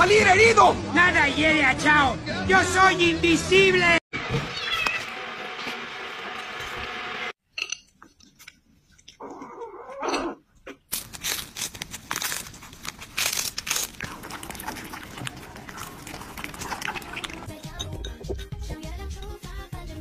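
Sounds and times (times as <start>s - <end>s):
cat crunching and chewing: 10.9s - 17.8s.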